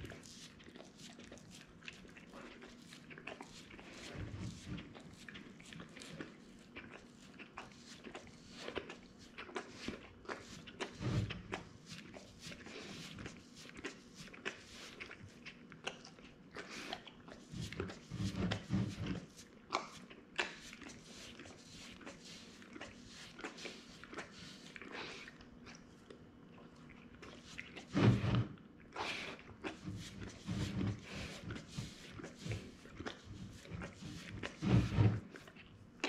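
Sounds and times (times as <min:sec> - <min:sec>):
dog licking and lapping: 0:00.0 - 0:36.0.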